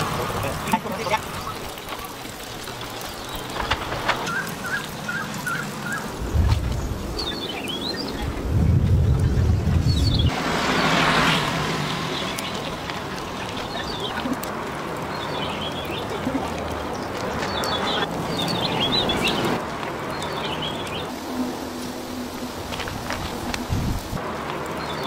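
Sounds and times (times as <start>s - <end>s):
steady noisy hiss: 19.4s - 25.0s.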